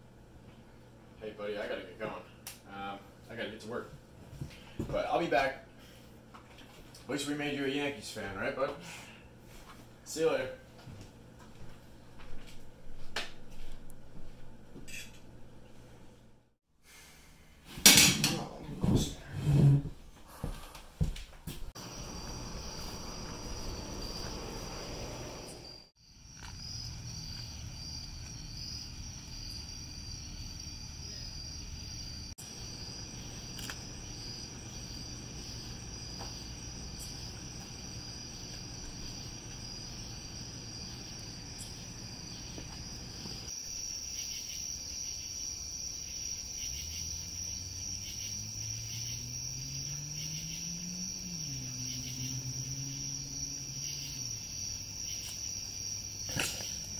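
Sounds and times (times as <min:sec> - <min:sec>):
night insects chirping: 0:21.8 - 0:56.9.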